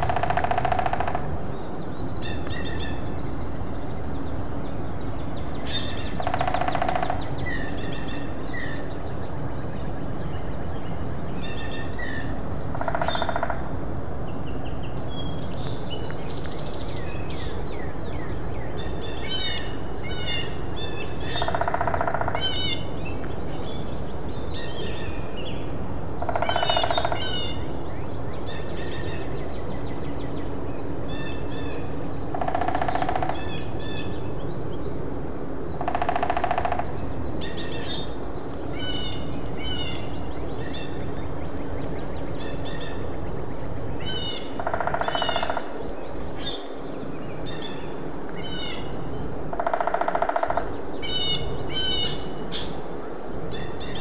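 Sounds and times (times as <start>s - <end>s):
woodpecker drumming on wood: 0.0s - 1.4s, 6.2s - 7.3s, 12.7s - 13.6s, 21.4s - 22.4s, 26.2s - 27.2s, 32.3s - 33.5s, 35.8s - 36.9s, 44.6s - 45.7s, 49.5s - 50.7s
songbirds chirping and singing: 0.0s - 13.6s, 14.3s - 54.0s.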